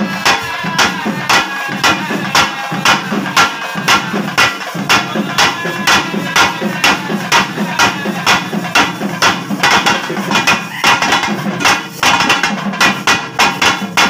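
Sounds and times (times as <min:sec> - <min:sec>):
drums beaten with sticks: 0:00.0 - 0:14.0.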